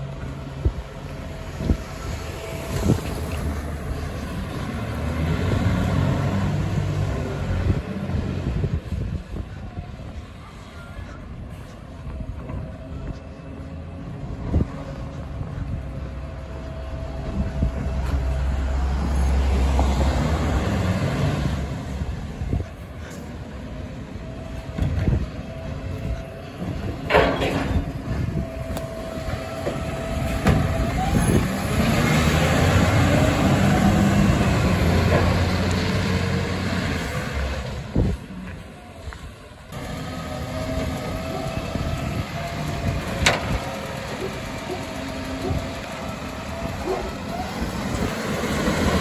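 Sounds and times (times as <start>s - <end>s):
garbage truck diesel engine revving: 1.2s - 8.8s, 23.0s - 38.5s, 39.7s - 49.0s.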